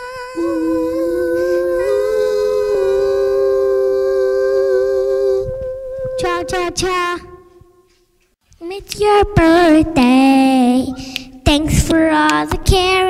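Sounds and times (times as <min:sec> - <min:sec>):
child singing a long note: 0:00.0 - 0:07.6
lower held note: 0:00.0 - 0:07.8.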